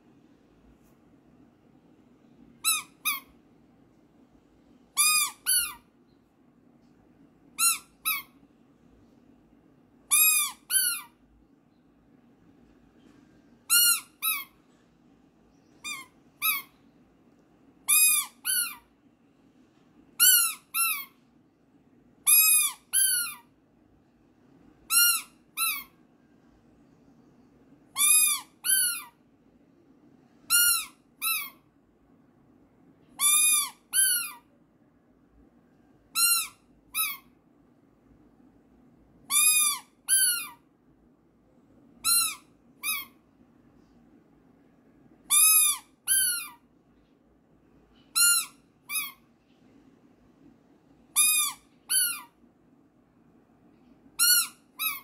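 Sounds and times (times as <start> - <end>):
high chirping squeaks: 2.6 - 3.4, 5.0 - 5.9, 7.6 - 8.4, 10.1 - 11.2, 13.6 - 14.6, 15.6 - 16.9, 17.9 - 18.9, 20.2 - 21.2, 22.3 - 23.5, 24.9 - 26.0, 27.9 - 29.2, 30.5 - 31.6, 33.2 - 34.4, 36.1 - 37.3, 39.3 - 40.6, 42.0 - 43.2, 45.3 - 46.6, 48.0 - 49.3, 51.2 - 52.4, 54.2 - 55.0.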